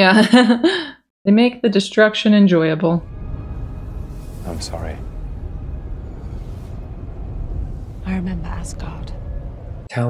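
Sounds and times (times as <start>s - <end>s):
dark ambient rumbling drone: 3.0s - 10.0s.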